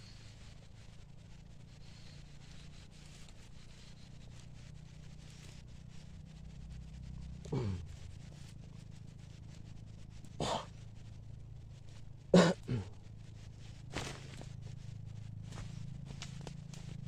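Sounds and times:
rustling in dry leaves: 0:00.0 - 0:06.1, 0:07.1 - 0:17.0
steady low hum: 0:00.0 - 0:17.0
animal call: 0:10.4 - 0:10.8.

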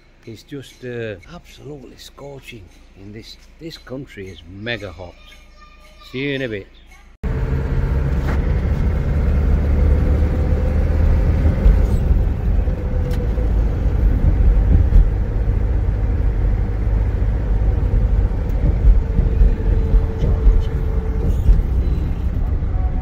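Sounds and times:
car engine and tyre rumble: 0:07.2 - 0:23.0.

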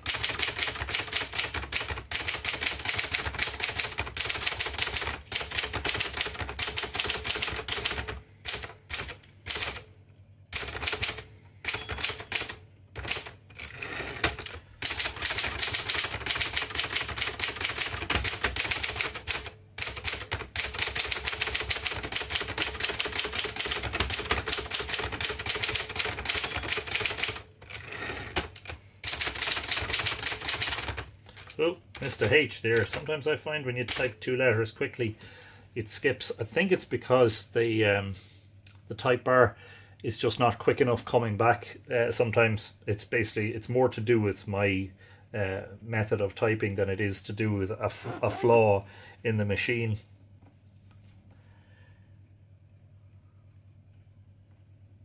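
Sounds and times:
manual typewriter typing: 0:00.0 - 0:09.8, 0:10.5 - 0:33.1, 0:33.8 - 0:34.1.

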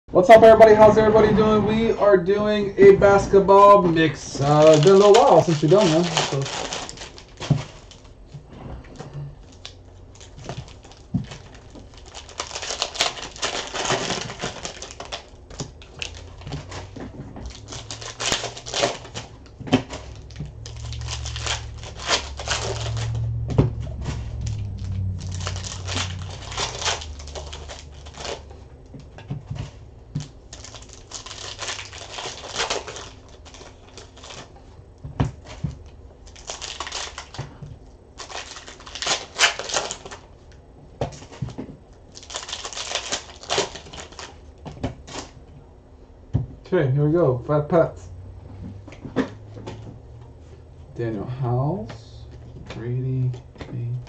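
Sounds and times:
low rumble: 0:00.1 - 0:07.4, 0:13.6 - 0:35.0
wrappers crinkling and tearing: 0:03.6 - 0:08.3, 0:09.0 - 0:29.0, 0:29.6 - 0:34.7, 0:35.3 - 0:40.6, 0:41.2 - 0:45.4
cards rustling and clicking: 0:04.2 - 0:08.2, 0:09.4 - 0:34.6.

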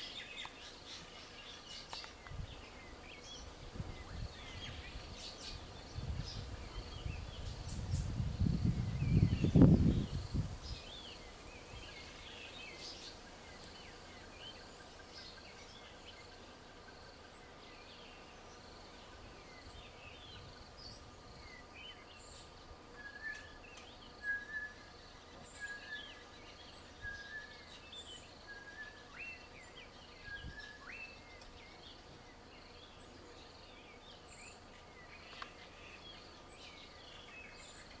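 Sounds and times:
birds chirping and whistling: 0:19.5 - 0:38.0.

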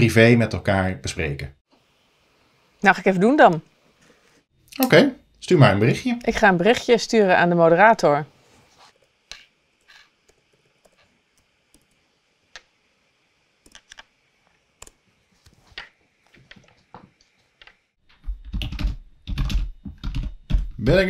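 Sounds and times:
laptop keyboard typing: 0:13.6 - 0:14.1, 0:18.2 - 0:20.7.

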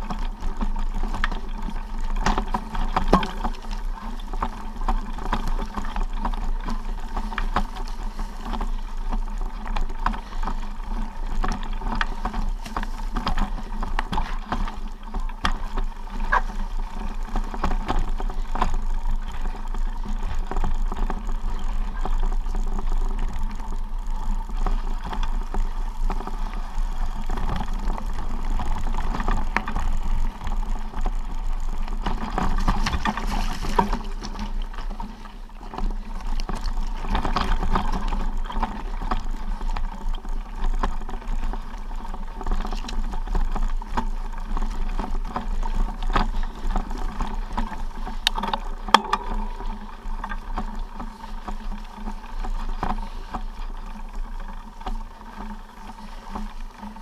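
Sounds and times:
wind on microphone: 0:48.3 - 0:51.6.

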